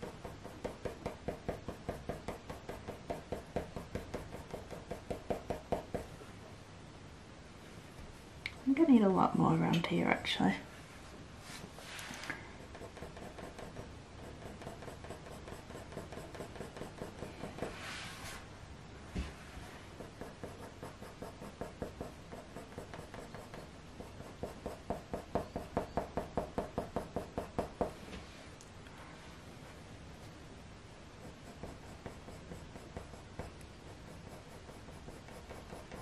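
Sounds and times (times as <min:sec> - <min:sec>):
coloured pencil shading on paper: 0:00.0 - 0:06.2, 0:12.6 - 0:18.0, 0:19.6 - 0:28.0, 0:31.0 - 0:36.0.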